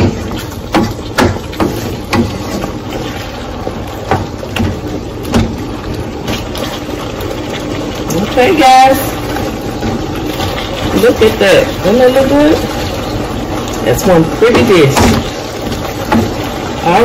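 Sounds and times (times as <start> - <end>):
wooden spoon scraping a pan: 0.0 - 4.8
stir-fry sizzling in a pan: 0.0 - 17.0.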